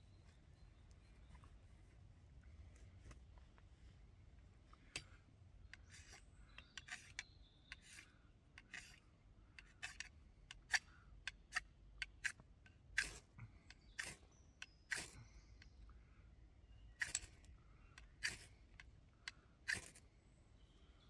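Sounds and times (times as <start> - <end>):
ferro rod scraped with striker: 5.6 - 9.0, 9.6 - 15.2, 17.0 - 20.0.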